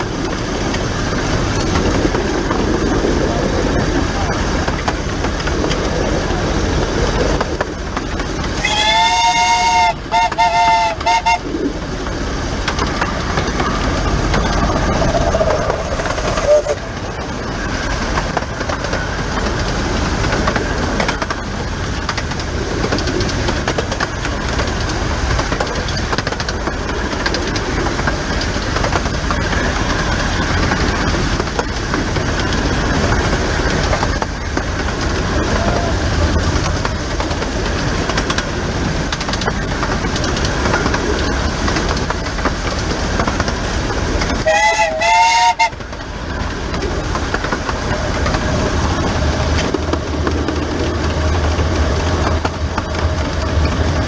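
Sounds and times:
rail clatter and running gear: 0.0s - 54.0s
locomotive whistle: 8.6s - 11.5s, 16.4s - 16.8s, 44.4s - 45.8s.

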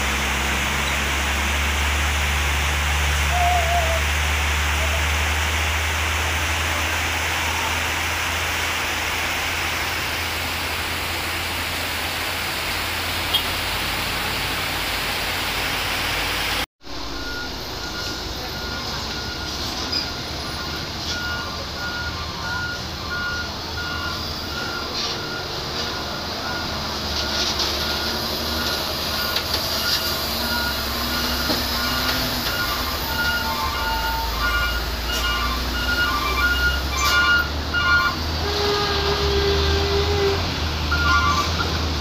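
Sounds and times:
rain hiss: 0.0s - 21.7s, 22.3s - 42.0s
truck engines humming: 0.0s - 42.0s
truck warning alarm beeps: 16.9s - 40.2s, 40.9s - 42.0s.

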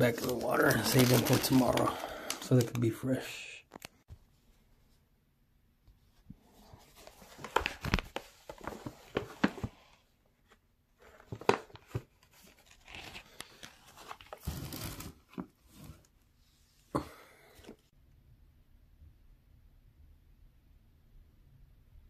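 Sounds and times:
foil bag crackling and tearing: 0.0s - 2.8s
foil crinkling: 0.0s - 2.9s.

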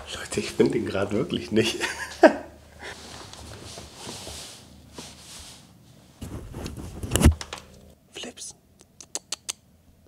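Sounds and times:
rustling and shuffling: 2.0s - 7.9s
scuffle: 3.0s - 7.3s.

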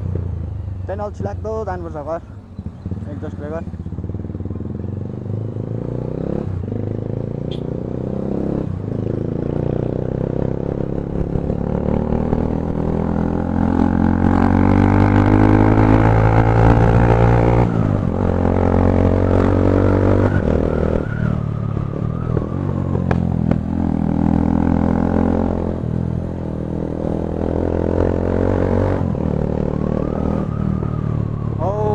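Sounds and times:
motorcycle engine running: 0.0s - 18.9s.

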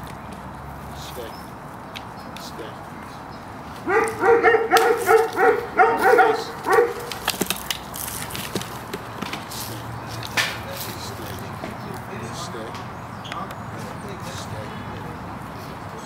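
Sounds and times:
dog barking deeply: 3.8s - 7.2s.

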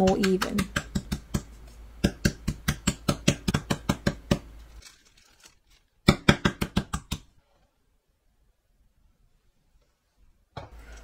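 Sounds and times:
meat mallet pounding: 0.0s - 4.5s, 6.1s - 7.3s.

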